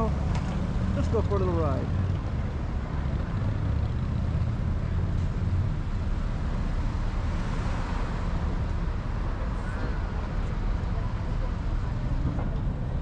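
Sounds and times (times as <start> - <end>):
vehicle engine and road rumble: 0.0 - 13.0.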